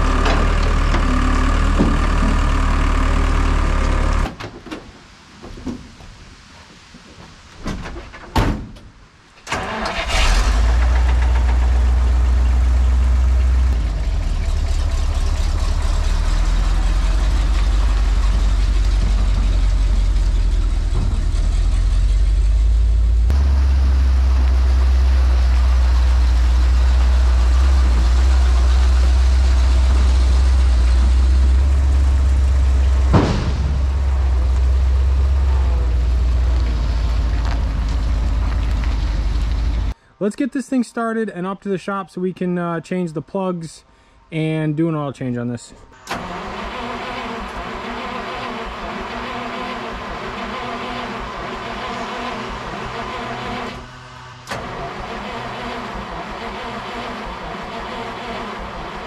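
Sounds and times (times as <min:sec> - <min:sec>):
loader engine running: 0:00.0 - 0:04.3, 0:09.5 - 0:40.0, 0:46.0 - 0:59.0
truck engine running: 0:00.0 - 0:04.3, 0:09.6 - 0:40.0.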